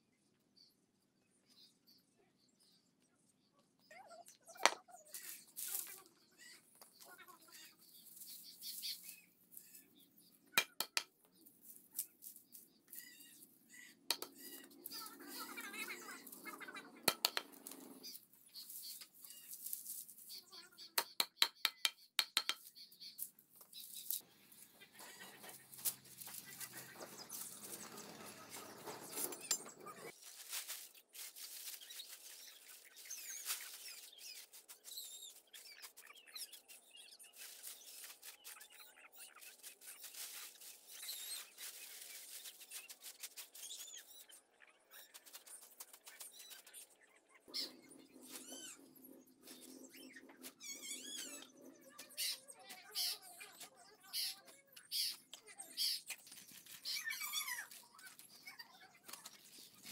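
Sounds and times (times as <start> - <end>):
dry stalks rustling: 5.1 - 6.0, 7.8 - 9.9, 17.3 - 20.4, 23.7 - 35.0, 37.3 - 38.7, 39.4 - 44.0, 56.2 - 58.5.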